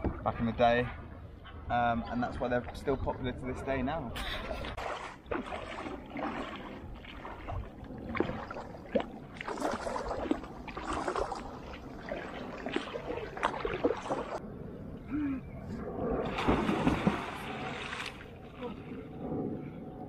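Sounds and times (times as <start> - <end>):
water splashing around wading legs: 4.5 - 14.4, 16.2 - 18.7.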